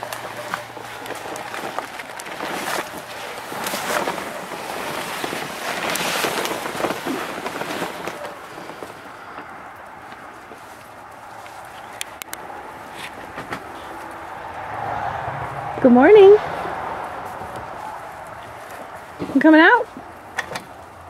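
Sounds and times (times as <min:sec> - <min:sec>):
rustling crackling movement: 0:00.0 - 0:21.0
scattered clicks: 0:11.9 - 0:12.4.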